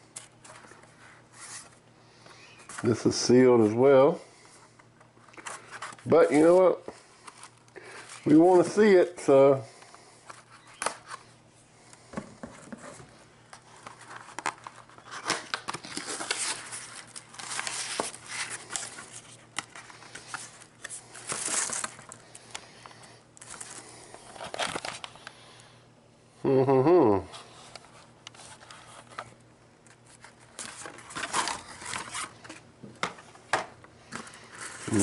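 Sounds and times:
paper crinkling: 0:13.6 - 0:25.3, 0:27.3 - 0:32.6.

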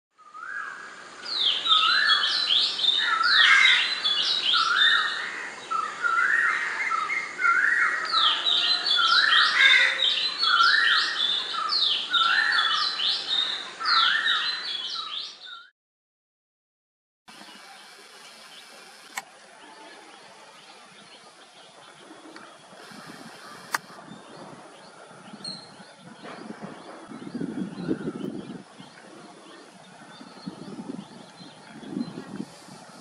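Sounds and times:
hornbill calling: 0:22.2 - 0:24.1.

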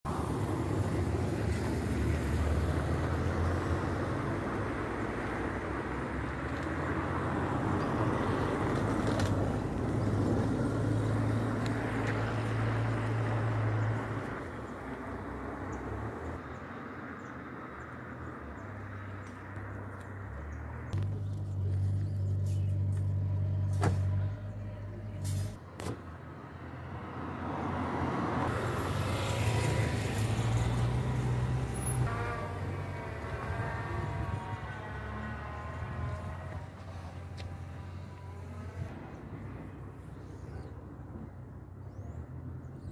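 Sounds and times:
low motor hum: 0:19.6 - 0:25.5, 0:31.3 - 0:41.2
vehicle engine passing by: 0:26.4 - 0:42.9.

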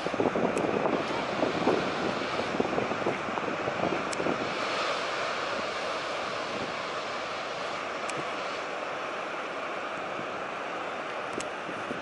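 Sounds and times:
wind buffeting microphone: 0:00.0 - 0:08.7, 0:11.2 - 0:12.0
big-wave surf roaring: 0:00.0 - 0:12.0.

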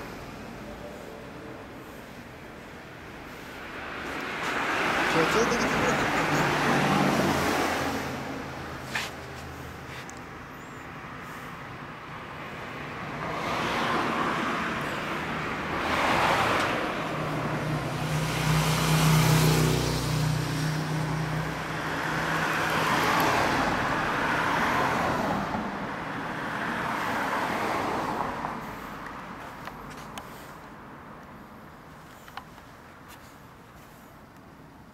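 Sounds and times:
vehicles passing: 0:00.0 - 0:34.9.

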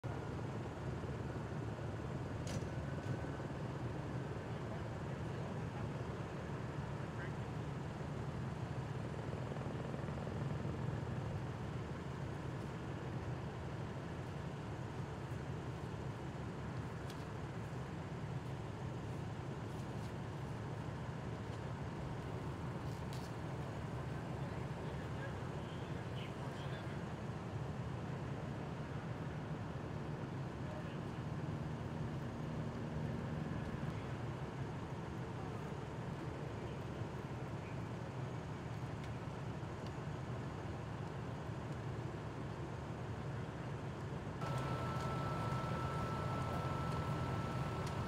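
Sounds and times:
street background noise: 0:00.0 - 0:48.0
vehicle engine idling: 0:44.4 - 0:48.0.

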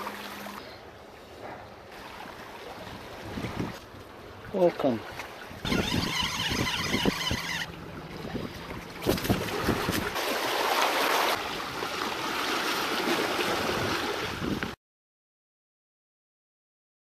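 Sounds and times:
sea waves washing: 0:00.0 - 0:14.8
wind buffeting microphone: 0:02.8 - 0:04.5, 0:05.4 - 0:10.2, 0:13.6 - 0:14.8
low wind thumps: 0:05.6 - 0:10.2.

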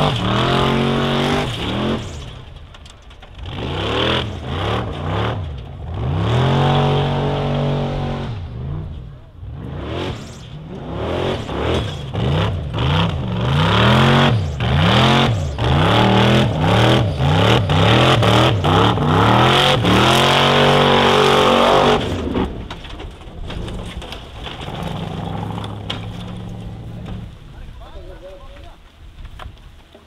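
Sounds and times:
race car engine revving: 0:00.0 - 0:02.6, 0:03.3 - 0:22.7.

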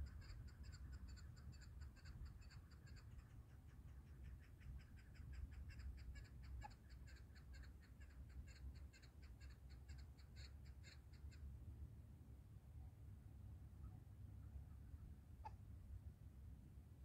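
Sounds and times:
partridge clucking calls: 0:00.0 - 0:11.4.

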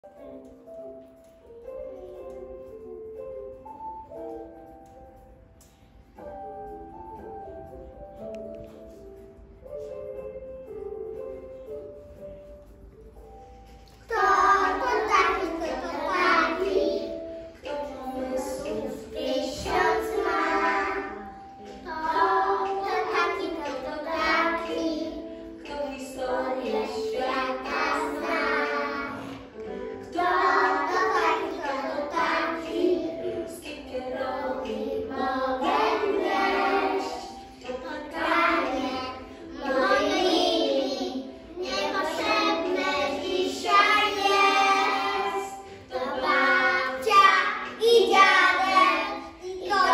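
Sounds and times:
children singing in unison: 0:14.0 - 0:49.9.

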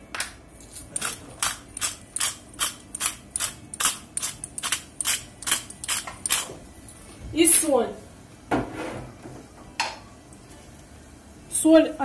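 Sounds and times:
pepper mill grinding: 0:00.6 - 0:06.5.

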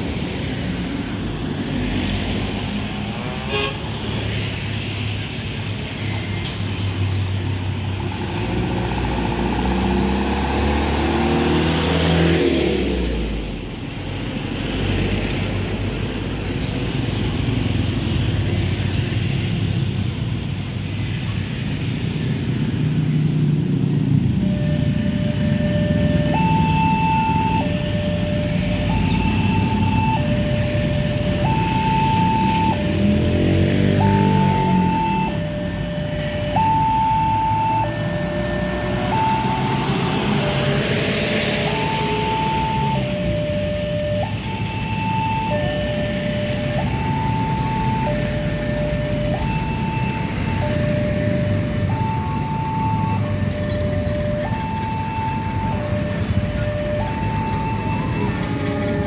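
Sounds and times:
heavy road traffic: 0:00.0 - 0:59.0
vehicle passing with falling pitch: 0:08.4 - 0:13.4, 0:24.2 - 0:59.0
electronic two-tone warning alarm: 0:24.3 - 0:40.7, 0:41.3 - 0:59.0.

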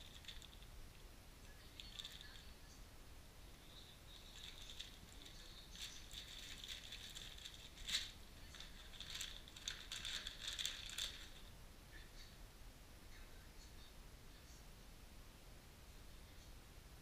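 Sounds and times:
plastic bags crinkling: 0:00.0 - 0:00.7, 0:01.7 - 0:02.5, 0:04.1 - 0:11.5.

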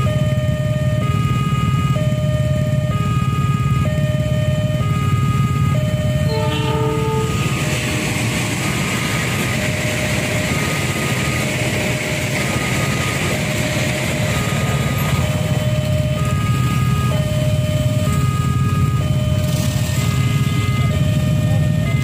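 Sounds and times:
crossing alarm two-tone beeps: 0:00.0 - 0:22.0
low engine rumble: 0:00.0 - 0:22.0
wheels rushing on rail: 0:00.0 - 0:22.0
train horn blast: 0:06.2 - 0:08.2.

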